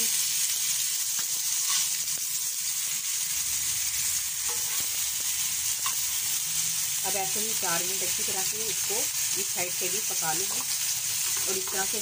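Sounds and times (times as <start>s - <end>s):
meat sizzling on a griddle: 0.0s - 12.0s
metal spatula scraping: 1.2s - 2.0s, 4.4s - 6.4s.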